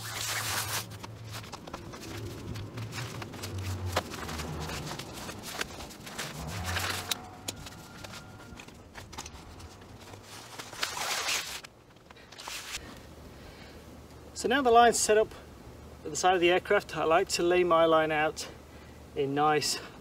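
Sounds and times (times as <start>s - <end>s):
rope scraping on pavement: 0.0s - 8.6s
footsteps: 0.1s - 10.8s.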